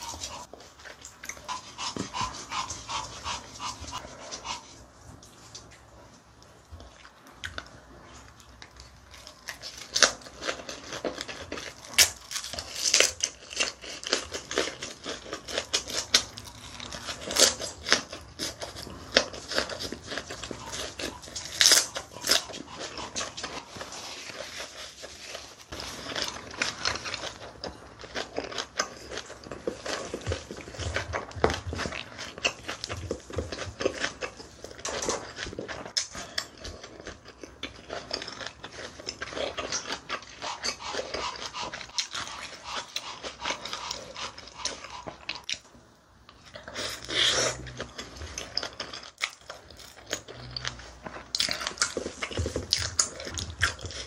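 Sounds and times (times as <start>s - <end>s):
crunching and chewing cabbage: 0.0s - 54.0s.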